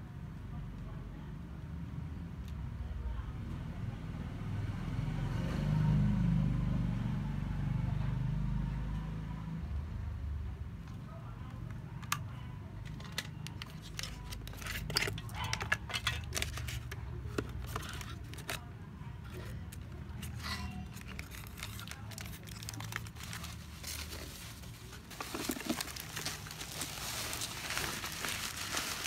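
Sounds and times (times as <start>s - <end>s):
plastic bag crinkling: 19.3s - 29.0s.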